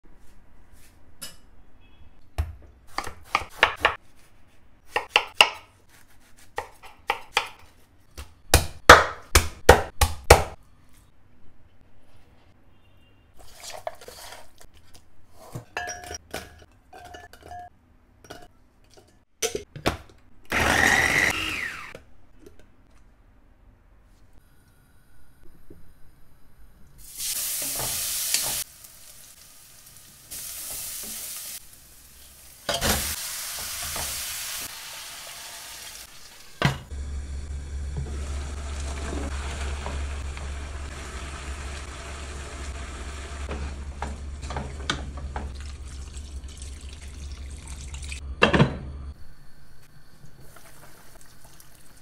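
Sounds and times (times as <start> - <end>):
utensils and bowls clinking: 15.7 - 19.6
electric food chopper whirring: 20.5 - 22.0.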